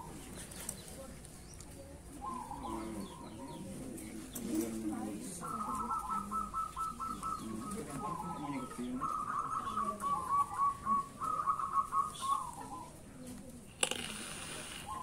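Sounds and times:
doves cooing: 0:02.0 - 0:15.0.

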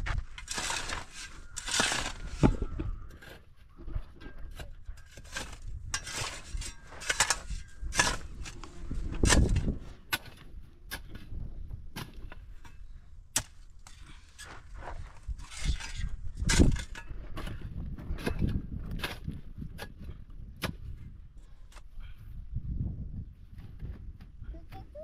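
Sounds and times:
shovel scraping stony dirt: 0:00.0 - 0:22.2.

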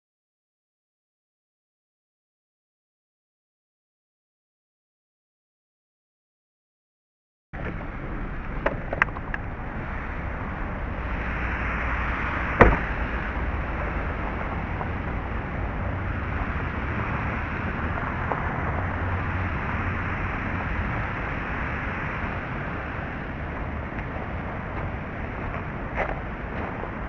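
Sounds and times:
rushing outdoor noise: 0:07.6 - 0:27.0
sharp knock: 0:12.6 - 0:13.0.

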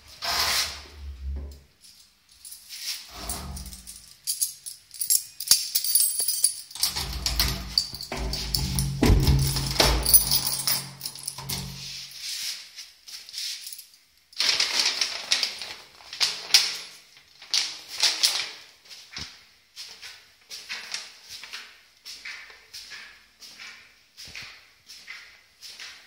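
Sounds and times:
paper envelope crinkling: 0:14.5 - 0:16.8.

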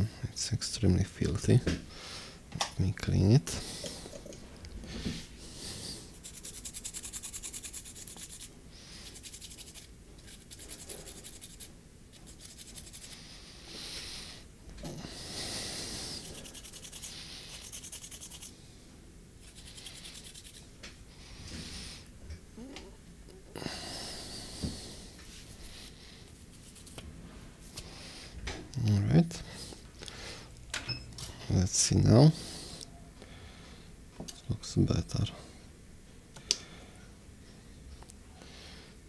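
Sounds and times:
scrubbing metal stencil: 0:06.1 - 0:13.2, 0:16.1 - 0:18.5, 0:19.4 - 0:20.6.

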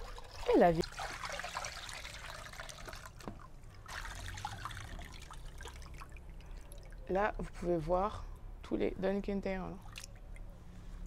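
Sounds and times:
water pouring into plastic basin: 0:00.0 - 0:07.1.

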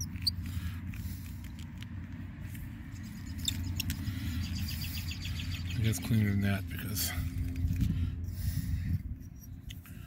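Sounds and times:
steady low rumble: 0:00.0 - 0:10.0.

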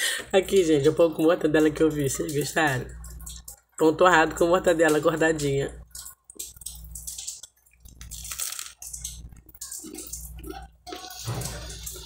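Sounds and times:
crunchy toast chewing: 0:05.9 - 0:12.0.

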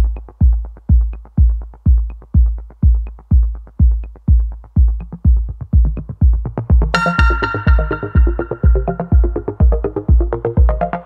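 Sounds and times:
electronic music: 0:00.0 - 0:11.0
kick drum: 0:00.0 - 0:11.0
synth part: 0:07.0 - 0:10.0.

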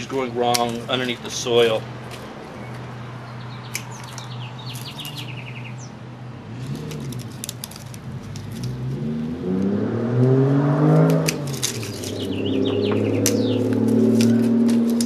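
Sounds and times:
bird chirping trills: 0:02.5 - 0:06.0, 0:11.7 - 0:14.9
vehicle engine revving: 0:06.4 - 0:15.0
dry plant debris rustling: 0:06.6 - 0:09.0, 0:11.3 - 0:15.0.

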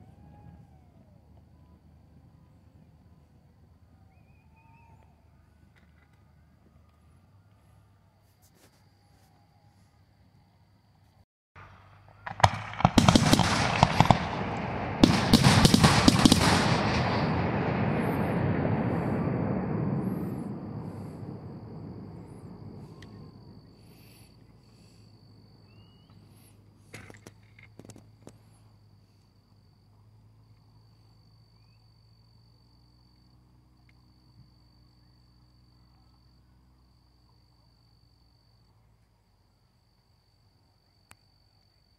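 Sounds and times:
crickets trilling: 0:00.0 - 0:11.2, 0:12.0 - 0:41.9
low hum: 0:09.8 - 0:39.6
dense crackle and echo: 0:11.6 - 0:25.0
firework shells bursting: 0:11.6 - 0:25.0.

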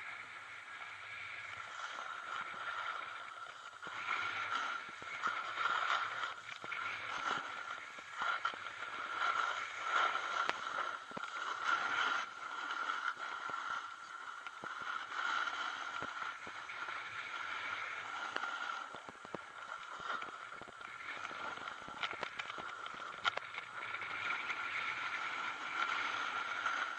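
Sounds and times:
ski edges scraping on snow: 0:00.2 - 0:26.9
small clicks and knocks: 0:18.4 - 0:24.0.

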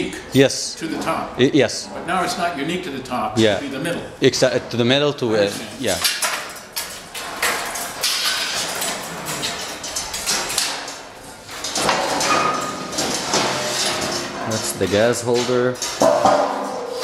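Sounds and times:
knocking and clattering: 0:06.0 - 0:17.0.

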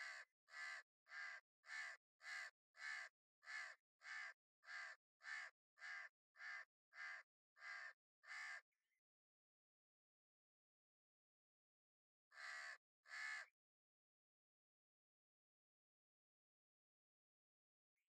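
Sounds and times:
crow cawing: 0:00.0 - 0:08.6, 0:12.3 - 0:13.5.

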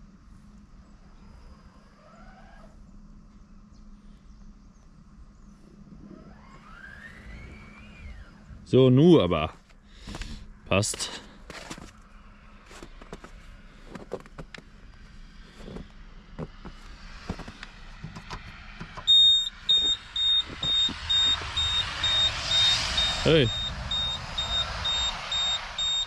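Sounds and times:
rushing noise: 0:16.1 - 0:26.0
rapid high electronic beeps: 0:19.1 - 0:26.0.

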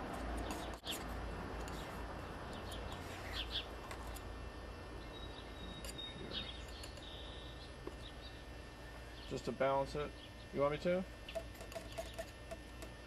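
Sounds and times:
steady background noise: 0:00.0 - 0:13.0
faint bird chirps: 0:05.0 - 0:08.5.

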